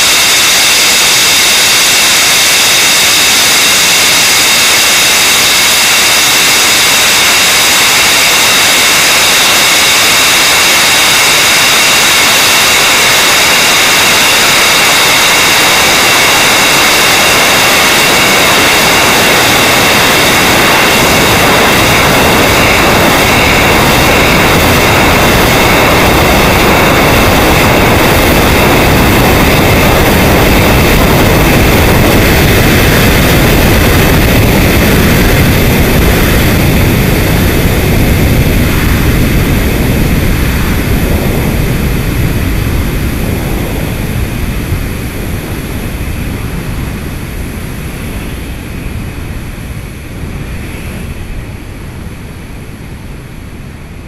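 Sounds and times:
rocket roaring: 0.0s - 53.4s
faint high whining tones: 0.0s - 54.0s.

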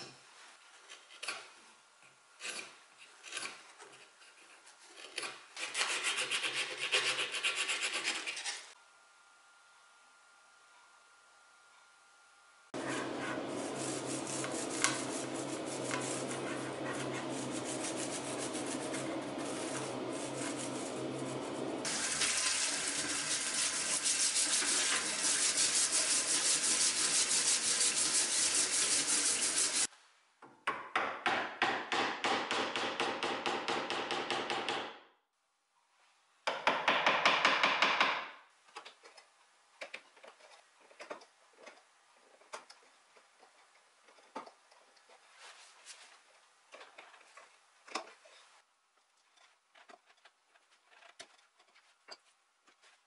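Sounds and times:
brush scrubbing: 5.6s - 8.8s, 12.8s - 29.9s, 41.6s - 48.6s, 49.2s - 53.0s
brush rubbing wood: 5.7s - 8.8s, 12.8s - 29.9s, 45.0s - 48.6s
running tap water hiss: 21.8s - 29.9s.

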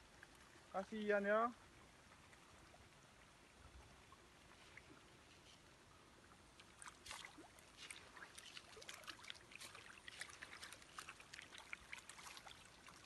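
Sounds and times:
fish splashing at water surface: 6.6s - 13.0s.

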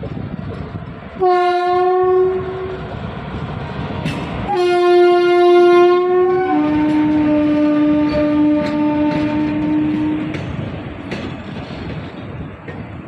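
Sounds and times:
train wheels rumbling on rails: 0.0s - 13.0s
locomotive air horn: 1.2s - 2.8s, 4.5s - 10.4s.

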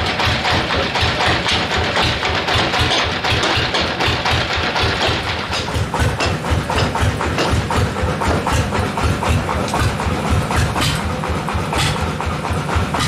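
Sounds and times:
heavy engine idling: 0.0s - 13.0s
clicks and knocks: 1.4s - 8.4s.

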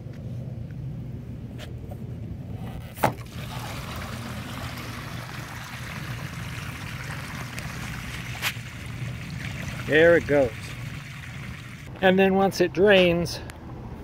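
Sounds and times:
water rushing through a hose: 3.1s - 11.9s.

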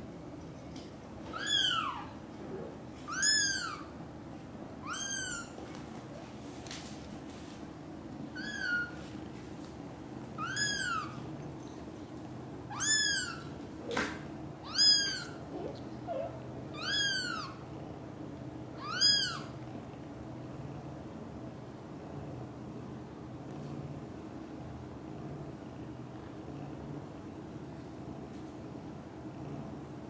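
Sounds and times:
kitten mewing: 10.4s - 11.2s, 14.6s - 17.6s.

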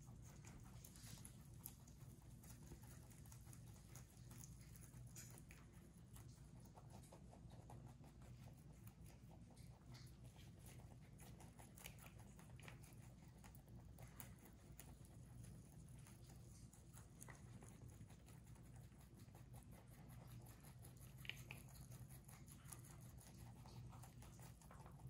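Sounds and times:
rabbits chewing leaves: 0.0s - 25.0s.

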